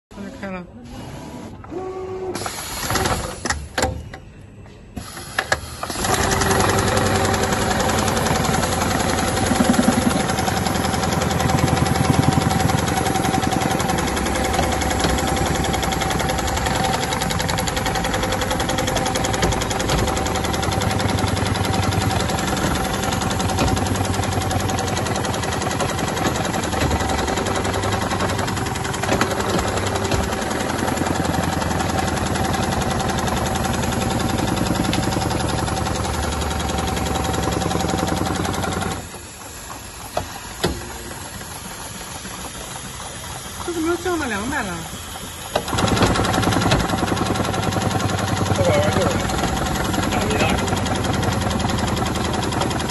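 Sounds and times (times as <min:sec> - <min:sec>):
sewing machine whine: 0:00.2 - 0:52.9
sewing machine clattering: 0:05.8 - 0:39.2, 0:45.6 - 0:52.9.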